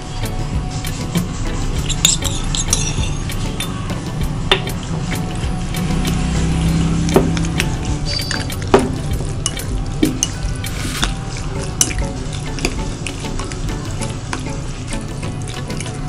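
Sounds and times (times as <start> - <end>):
spoon clinking against glass: 1.8 - 3.8, 7.2 - 13.4.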